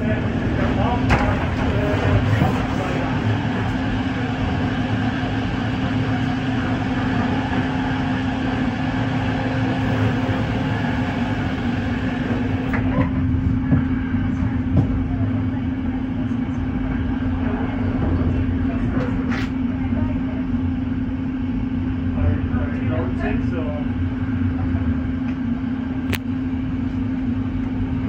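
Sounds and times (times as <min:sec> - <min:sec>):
constant low hum: 0:00.0 - 0:28.0
train rolling rumble and hiss: 0:00.0 - 0:28.0.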